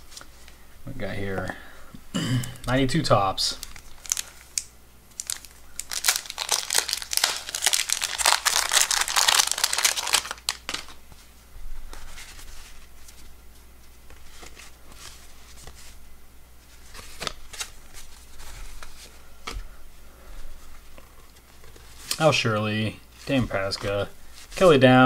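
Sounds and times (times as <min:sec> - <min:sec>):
wrapper crinkling and ripping: 0:03.5 - 0:11.0
cards rustling and clicking: 0:03.6 - 0:11.0, 0:16.8 - 0:19.6.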